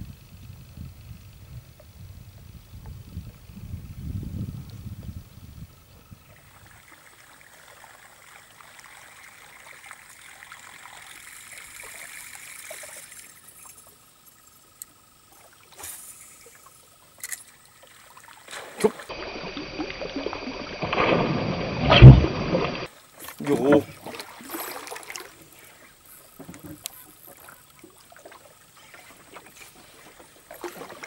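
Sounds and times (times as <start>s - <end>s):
lure splashing across water: 23.2s - 31.0s.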